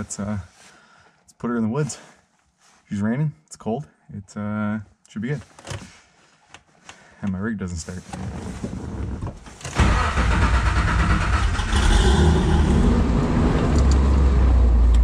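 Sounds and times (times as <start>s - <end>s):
engine cranking and running: 9.8s - 15.0s.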